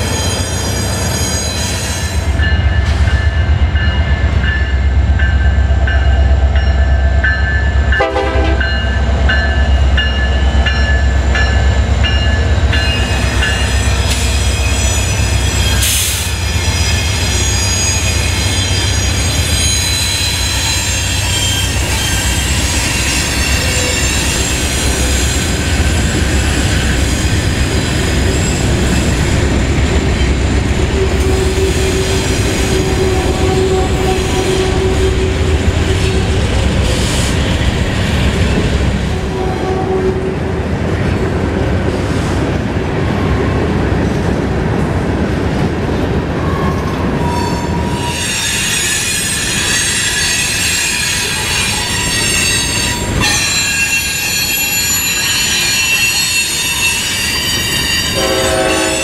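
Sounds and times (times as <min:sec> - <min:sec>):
high wheel squeal: 0:00.0 - 0:02.4, 0:13.1 - 0:29.3, 0:46.5 - 0:59.0
crossing bell ringing: 0:00.0 - 0:24.7, 0:47.3 - 0:59.0
locomotive engines rumbling: 0:00.0 - 0:59.0
train wheels on rails: 0:00.0 - 0:59.0
train horn: 0:08.0 - 0:08.8, 0:31.0 - 0:36.4, 0:39.2 - 0:40.6, 0:56.0 - 0:59.0.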